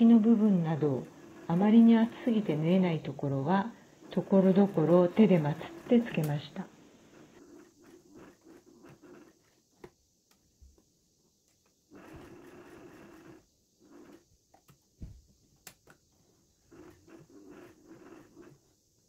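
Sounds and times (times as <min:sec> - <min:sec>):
sewing machine stitching: 0:00.0 - 0:09.9, 0:11.9 - 0:14.3, 0:16.6 - 0:18.7.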